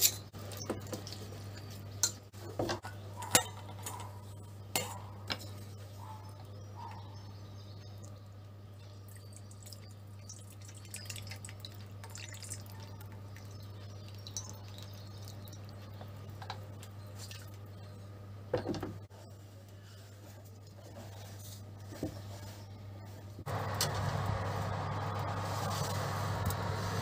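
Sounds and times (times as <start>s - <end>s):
steady low hum: 1.2s - 27.0s
liquid dripping into metal bowl: 9.1s - 15.7s.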